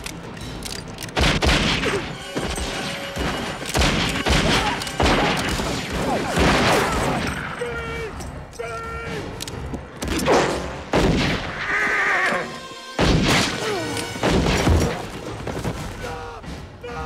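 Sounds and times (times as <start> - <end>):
film score: 0.0 - 17.0
heavy gunshots: 1.2 - 7.4, 10.2 - 11.6, 13.0 - 13.6
horse whinnying: 11.7 - 12.6.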